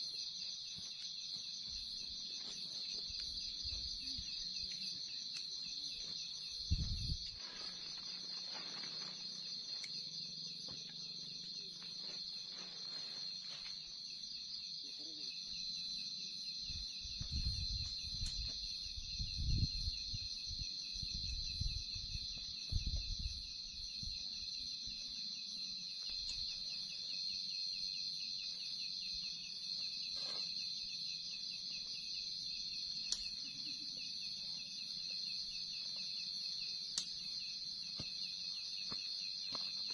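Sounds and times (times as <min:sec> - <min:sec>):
crickets trilling: 0:00.0 - 0:39.9
tent fabric rustling: 0:07.4 - 0:09.5.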